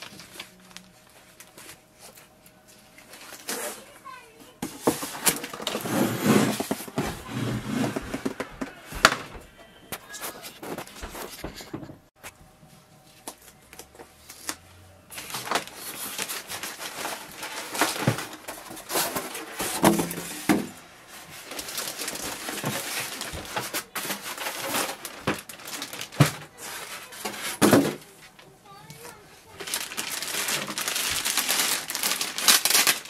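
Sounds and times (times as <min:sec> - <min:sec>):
plastic wrap crinkling: 0:00.0 - 0:09.3, 0:13.2 - 0:20.5, 0:21.2 - 0:33.0
foam packing rubbing and knocking: 0:04.6 - 0:09.5.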